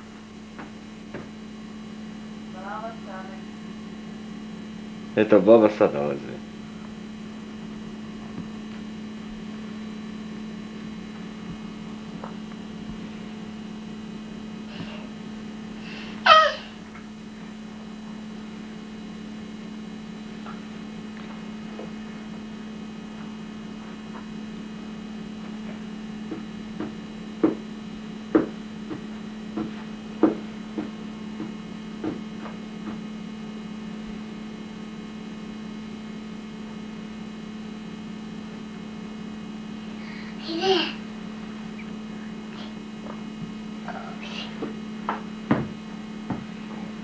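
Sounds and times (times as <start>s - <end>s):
electrical mains hum: 0.0s - 47.0s
wooden bench knocking on floor: 45.1s - 46.5s.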